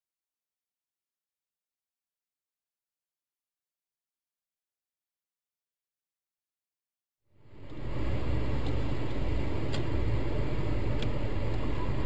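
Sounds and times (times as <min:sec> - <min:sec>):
road noise: 0:07.3 - 0:12.0
car engine: 0:07.4 - 0:12.0.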